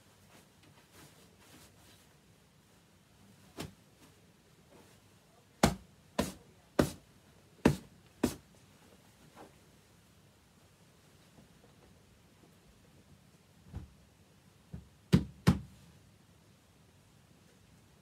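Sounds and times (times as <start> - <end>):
hands slapping a pillow: 5.6 - 7.0, 7.7 - 8.4.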